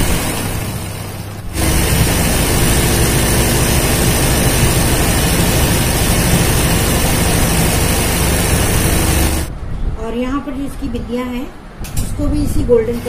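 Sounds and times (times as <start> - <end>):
sewing machine whirring: 0.0 - 9.5.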